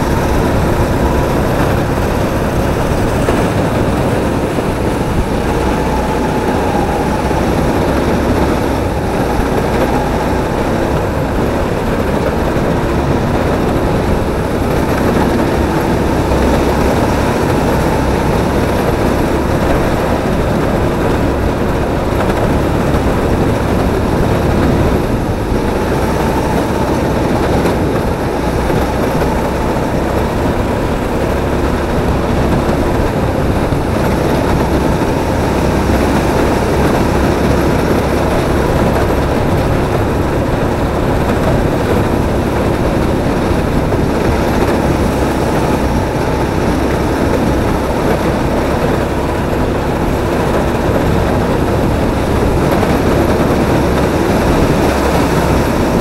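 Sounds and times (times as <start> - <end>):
kart motor and rolling noise: 0.0 - 56.0.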